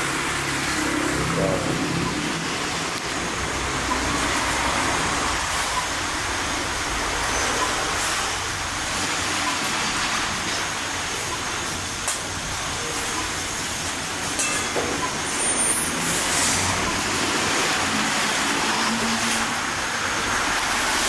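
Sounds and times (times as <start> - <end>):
metal pots and utensils clinking: 14.3 - 17.0.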